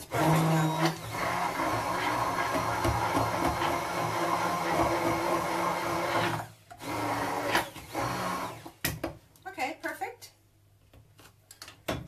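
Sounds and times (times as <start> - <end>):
blender motor running: 0.0 - 8.7.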